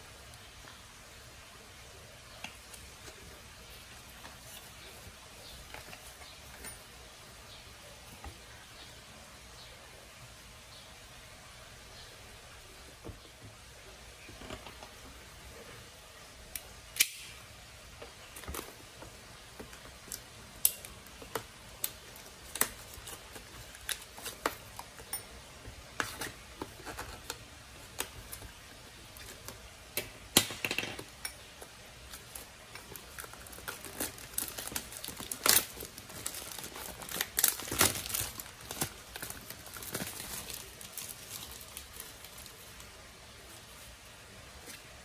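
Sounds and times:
plastic bag crinkling: 0:32.0 - 0:42.9.

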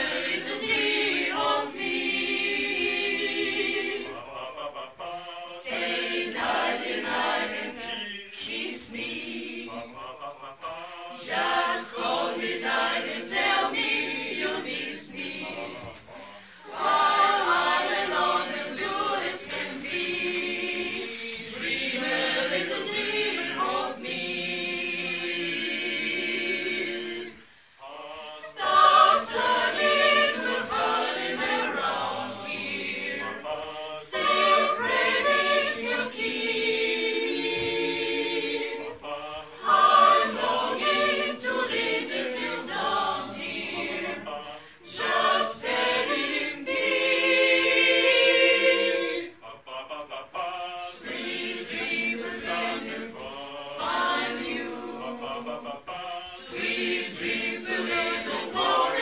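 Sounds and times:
choir singing a cappella: 0:00.0 - 0:59.0.

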